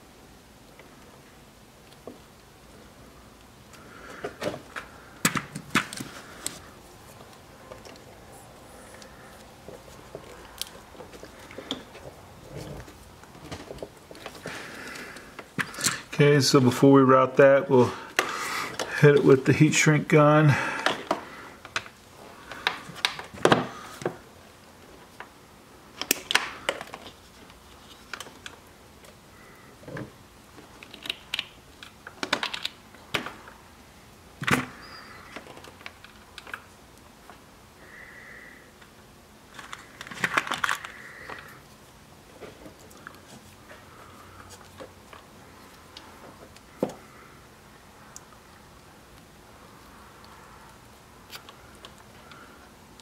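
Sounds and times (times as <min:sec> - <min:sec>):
clicks and rustles of wires: 0:01.8 - 0:16.8, 0:20.7 - 0:24.2, 0:24.8 - 0:37.4, 0:38.8 - 0:47.3, 0:48.1 - 0:53.0.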